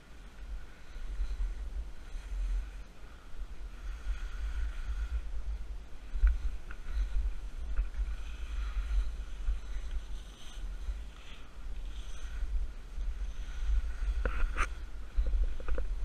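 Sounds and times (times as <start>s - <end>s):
wind buffeting camera: 0.0s - 16.0s
skis scraping over snow: 6.1s - 16.0s.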